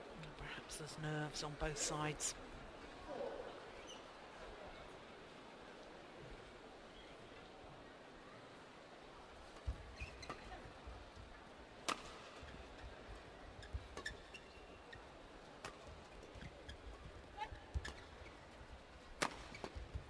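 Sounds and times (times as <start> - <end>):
faint crowd murmur: 0.0 - 13.7
shoes squeaking on court: 13.6 - 14.8
racket hitting shuttlecock: 19.2 - 19.7.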